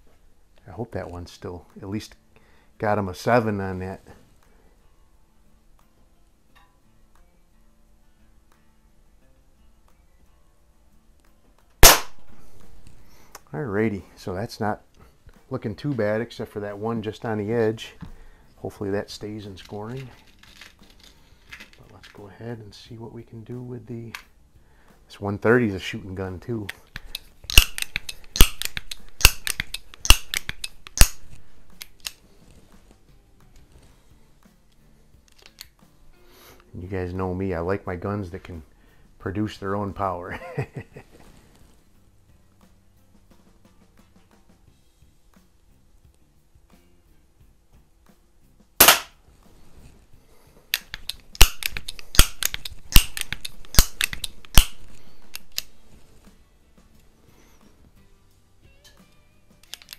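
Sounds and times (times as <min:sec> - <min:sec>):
air pistol shot: 0:11.8 - 0:12.8, 0:27.5 - 0:32.0, 0:48.8 - 0:49.2, 0:50.8 - 0:55.7.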